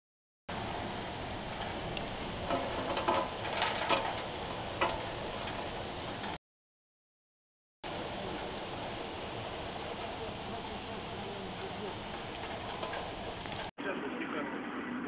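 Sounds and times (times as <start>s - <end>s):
rain and wind hiss: 0.5s - 6.4s, 7.9s - 13.7s.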